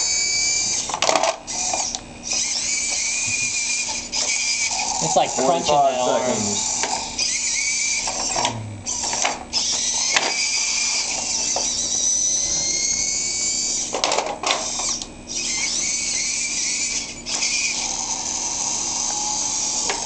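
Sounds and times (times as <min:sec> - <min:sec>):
high-pitched electric motor whine: 0:00.0 - 0:20.0.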